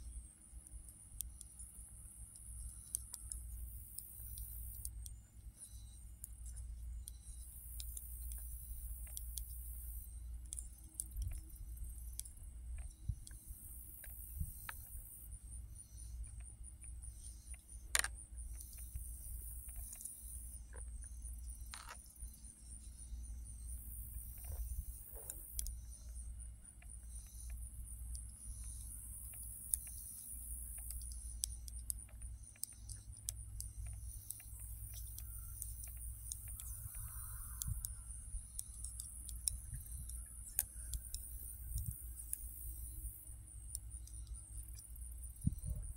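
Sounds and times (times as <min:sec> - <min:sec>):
knitting needles clicking: 0:02.3 - 0:05.1, 0:06.3 - 0:15.0, 0:16.2 - 0:20.2, 0:21.6 - 0:22.1, 0:26.7 - 0:45.8.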